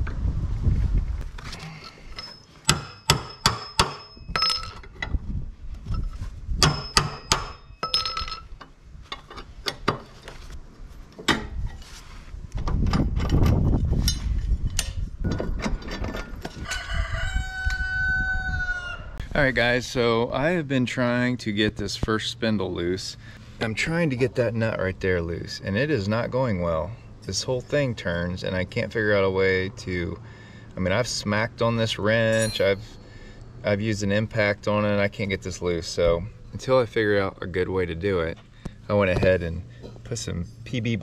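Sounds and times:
metal tools clanking on blades: 1.7s - 4.9s, 32.2s - 33.0s
rooster crowing: 16.6s - 19.2s.

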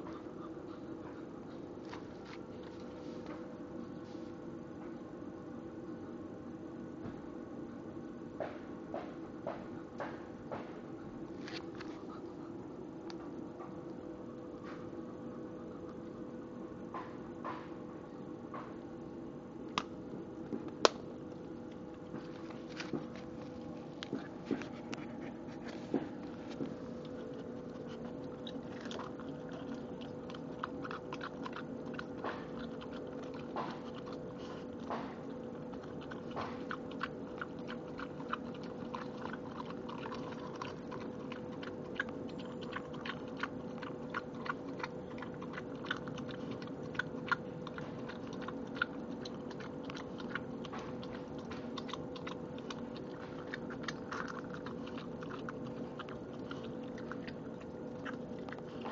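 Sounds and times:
low steady hum: 0.0s - 58.9s
dog crunching eggshell: 19.7s - 58.9s
dog licking: 21.4s - 58.9s.

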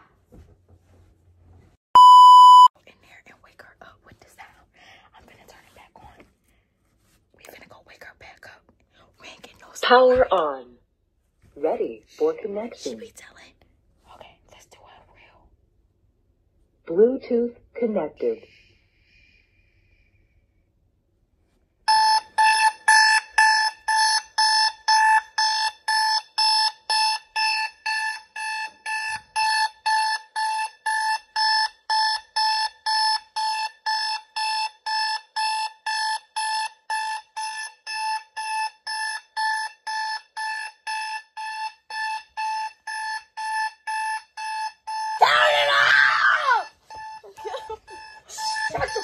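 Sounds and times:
alarm clock beeping: 2.0s - 2.7s, 21.9s - 49.0s.

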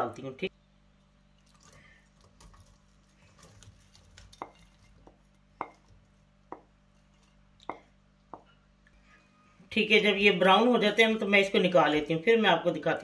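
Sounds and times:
onions rustling: 1.4s - 7.6s.

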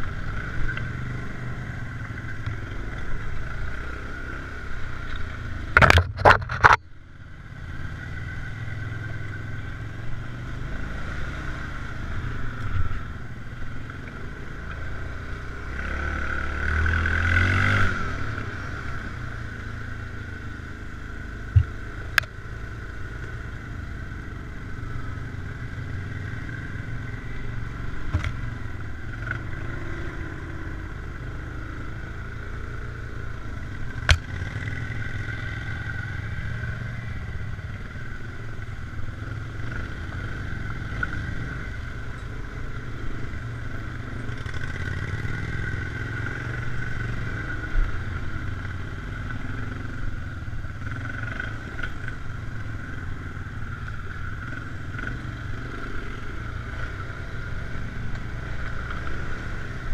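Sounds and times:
atv engine running: 0.0s - 59.9s
knocks and clatter from rough ground: 5.7s - 6.9s.

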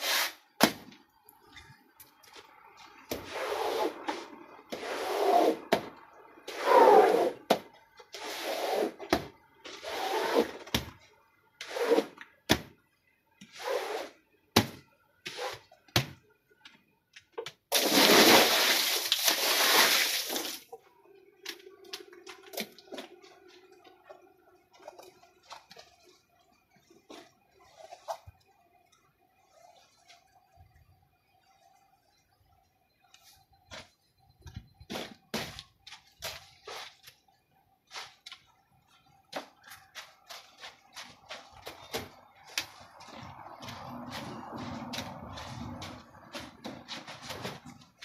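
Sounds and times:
water splashing on rug: 17.7s - 20.6s.

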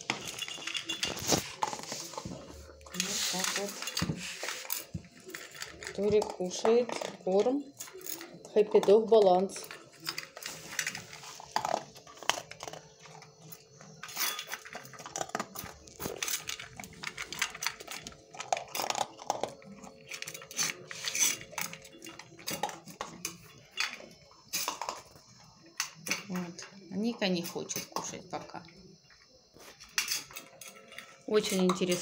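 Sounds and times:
dog crunching dry kibble: 0.0s - 24.1s
kibble rattling in metal bowl: 0.0s - 28.6s, 29.8s - 32.0s.

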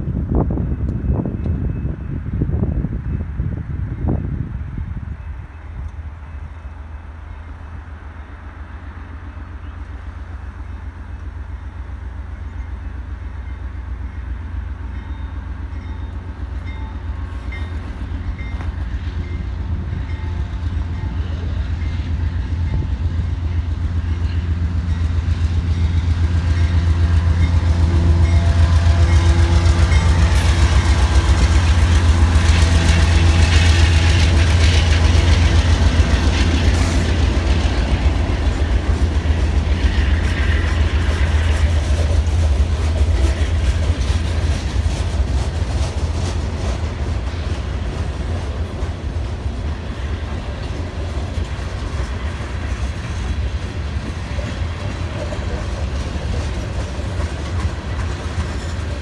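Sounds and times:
diesel locomotive hum: 0.0s - 59.0s
crossing warning bell dinging: 0.5s - 8.5s, 9.2s - 34.1s
freight cars rumbling and clattering: 28.3s - 59.0s.

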